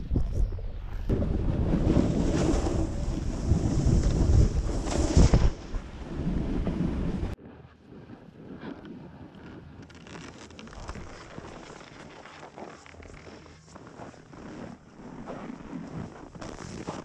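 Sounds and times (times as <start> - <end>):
wind buffeting microphone: 0.0 - 9.9
snowboard scraping over snow: 1.1 - 7.4, 9.9 - 17.0.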